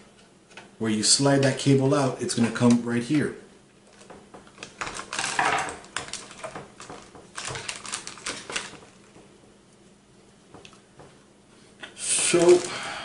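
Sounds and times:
foil bag crinkling: 3.9s - 9.2s, 12.0s - 13.0s.

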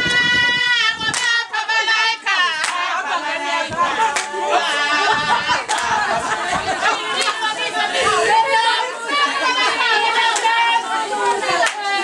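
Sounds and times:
women singing together: 0.0s - 12.0s
hand claps: 1.1s - 1.4s, 2.6s - 2.8s, 3.7s - 4.4s, 5.6s - 5.9s, 6.5s - 7.4s, 10.3s - 10.6s, 11.5s - 11.9s.

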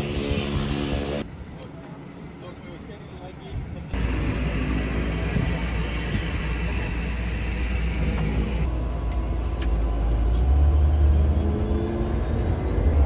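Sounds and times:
aircraft engine rumble: 0.0s - 10.4s.

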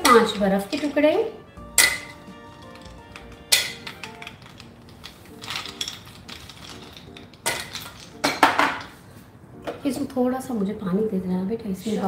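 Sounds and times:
glass bowl clinking: 1.6s - 8.9s
ice cubes clinking into blender jar: 1.8s - 8.3s.

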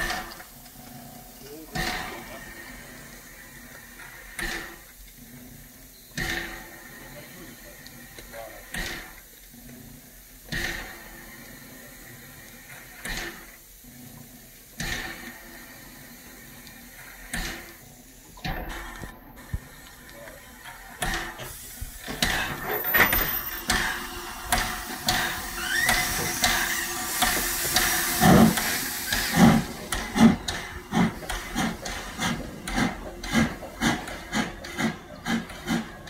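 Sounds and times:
steam hissing: 0.0s - 36.0s
locomotive exhaust beats: 10.1s - 36.0s.

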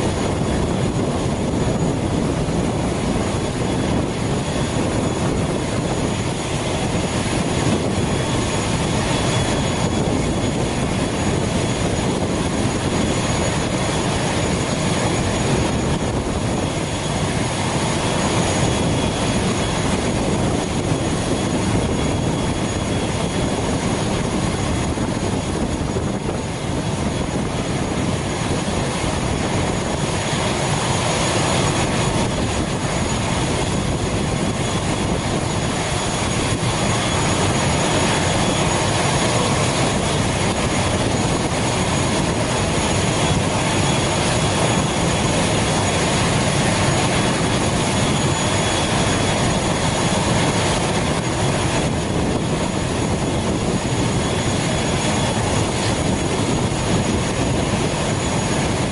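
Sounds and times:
turboprop turbine whine and rumble: 0.0s - 58.9s.

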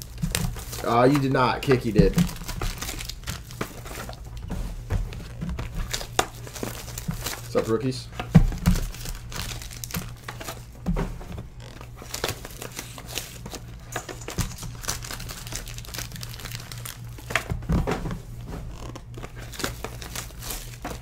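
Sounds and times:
foil card packs crinkling: 0.0s - 21.0s.

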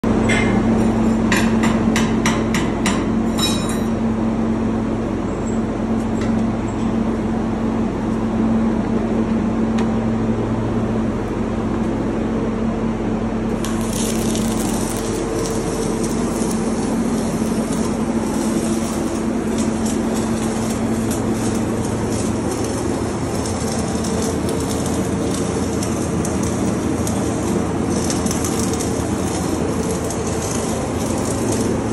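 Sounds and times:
low machinery hum: 0.0s - 31.9s
welding arc crackling: 13.5s - 31.9s.

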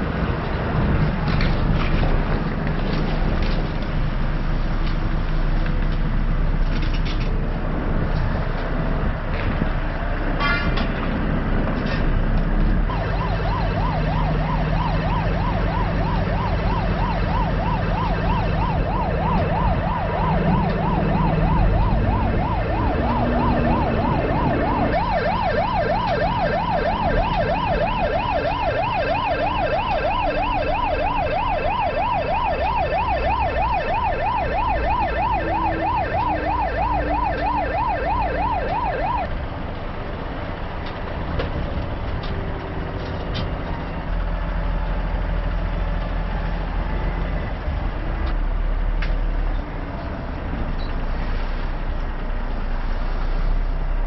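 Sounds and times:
low vehicle engine drone: 0.0s - 54.0s
electronic siren yelping: 12.9s - 39.4s.

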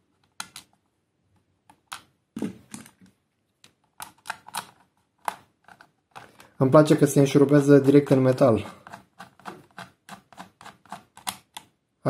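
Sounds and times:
screw clicking into plastic: 8.8s - 11.7s.

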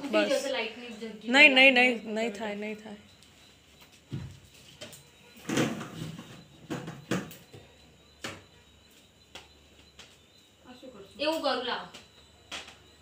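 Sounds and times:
thump stepping onto plastic stool: 4.1s - 4.4s.

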